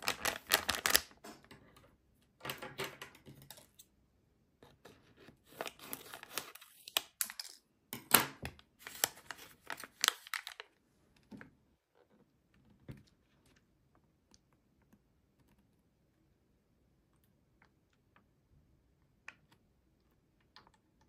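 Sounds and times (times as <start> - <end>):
plastic sachet rustling: 0.0 - 1.2, 8.8 - 10.7.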